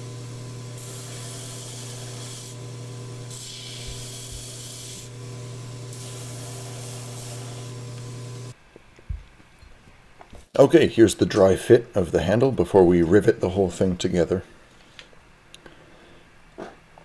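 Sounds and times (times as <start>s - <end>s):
belt sander humming: 0.0s - 8.5s
wood hissing against sanding belt: 0.6s - 2.6s, 3.2s - 5.2s, 5.9s - 8.5s.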